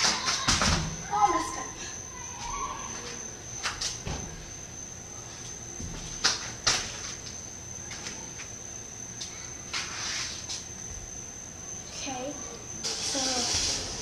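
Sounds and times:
soft scuffing: 5.3 - 8.6, 9.2 - 11.2
hands and feet slapping floor: 5.8 - 8.5.

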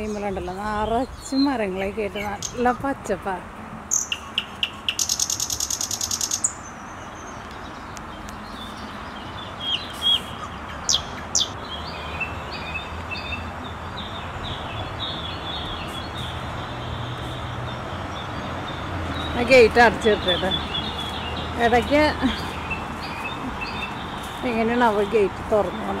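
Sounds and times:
bird rapid high trill: 3.9 - 6.7.

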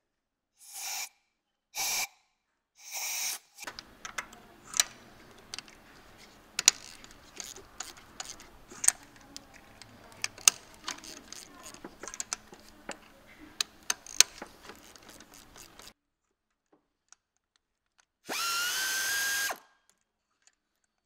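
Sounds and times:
socket wrench clicking: 3.6 - 15.9.

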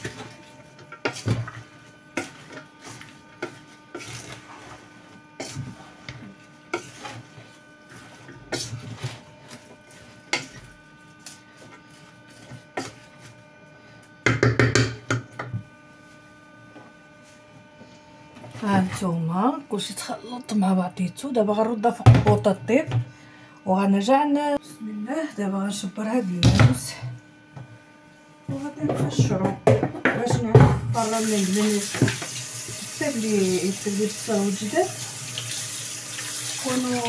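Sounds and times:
wooden spoon scraping a pot: 0.0 - 13.4.

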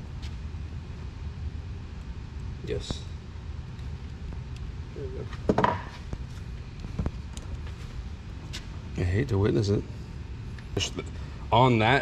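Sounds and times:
steady low hum: 0.0 - 12.0
knock on workbench: 5.5 - 5.9.

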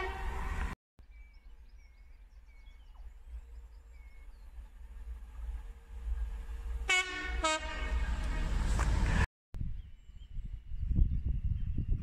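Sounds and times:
train two-tone horn toots: 0.0 - 0.8, 6.8 - 9.2
train rumble: 2.3 - 9.3.

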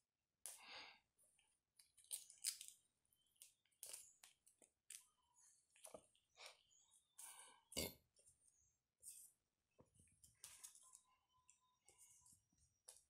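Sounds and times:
kittens rustling and scratching: 8.1 - 13.0.

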